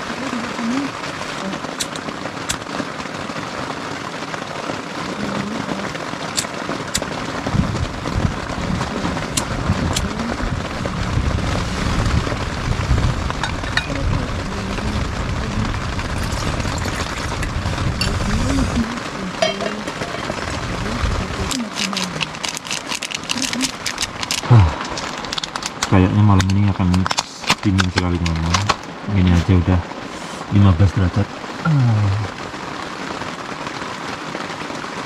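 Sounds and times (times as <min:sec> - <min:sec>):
steady rain falling: 0:00.0 - 0:35.0
low rumble: 0:07.1 - 0:22.4, 0:23.0 - 0:32.6.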